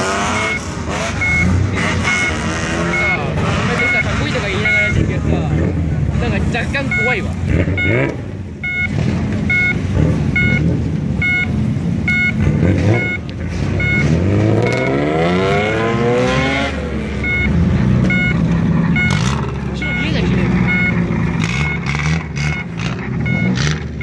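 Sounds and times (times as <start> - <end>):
loud car exhausts idling and revving: 0.0 - 24.0
two-note electronic beep: 0.2 - 5.0, 6.9 - 9.8, 10.4 - 13.2, 13.8 - 16.1, 17.2 - 18.4.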